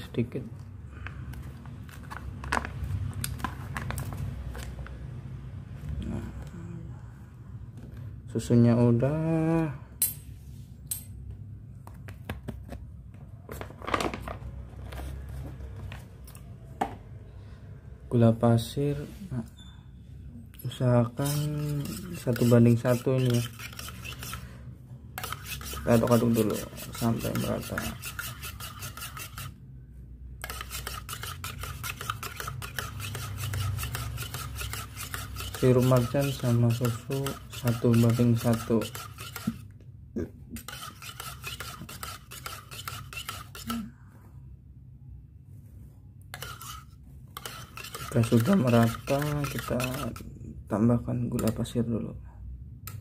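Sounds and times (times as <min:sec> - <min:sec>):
metal spoon stirring in mug: 0:20.6 - 0:24.5, 0:25.1 - 0:29.6, 0:30.4 - 0:39.7, 0:40.6 - 0:43.9, 0:46.3 - 0:50.3, 0:51.3 - 0:51.8.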